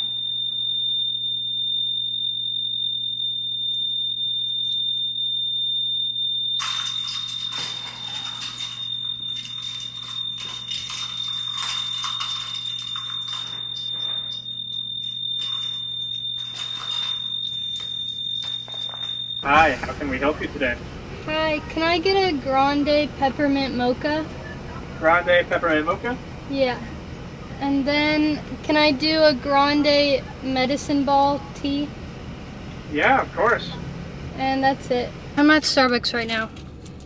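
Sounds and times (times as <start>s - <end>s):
fire alarm high-pitched tone: 0.0s - 19.6s
rustling and clattering handling noise: 6.6s - 19.4s.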